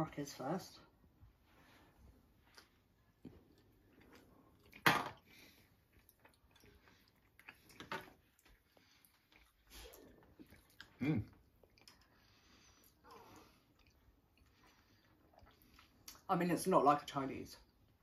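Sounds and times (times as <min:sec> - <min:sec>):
quiet chewing: 0:02.4 - 0:16.3.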